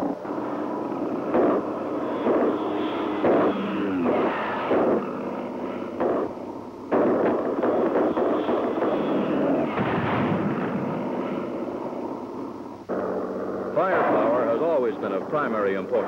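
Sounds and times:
cannon and machine guns firing: 0.0s - 16.0s.

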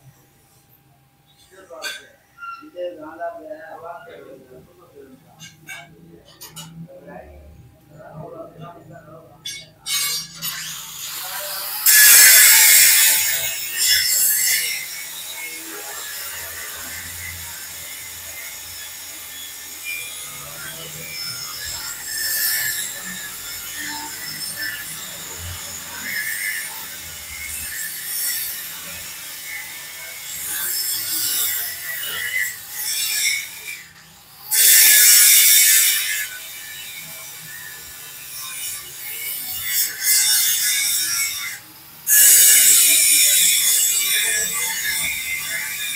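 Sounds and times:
metal scraping against metal: 1.3s - 3.0s, 5.2s - 7.3s, 9.3s - 18.4s.

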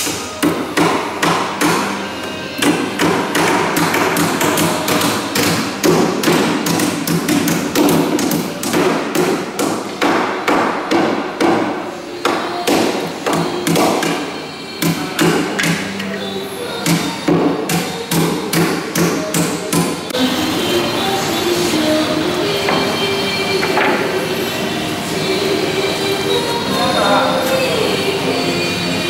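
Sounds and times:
hammers striking timber and nails: 0.4s - 1.9s, 2.6s - 14.2s, 14.8s - 15.9s, 16.8s - 19.9s.

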